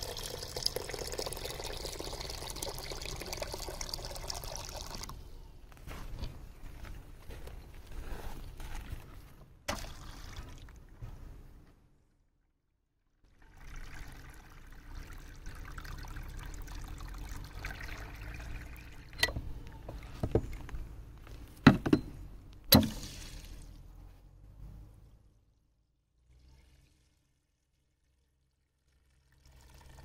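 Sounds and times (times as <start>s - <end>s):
water pouring into plastic feeder: 0.0s - 5.2s, 9.7s - 10.8s, 13.3s - 19.2s, 26.3s - 30.0s
sharp knocks: 21.6s - 22.1s.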